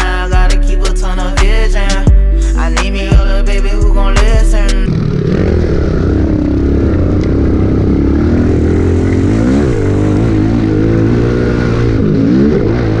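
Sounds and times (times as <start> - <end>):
pit bike engine revving: 4.0 - 13.0.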